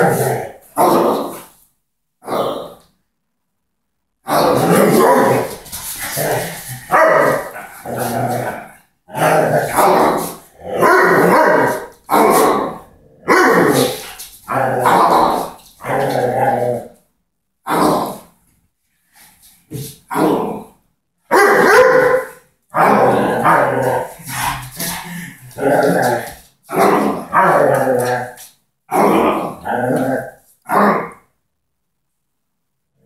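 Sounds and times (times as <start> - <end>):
dog growling and barking: 0.0 - 1.5, 4.2 - 17.0, 20.1 - 31.3.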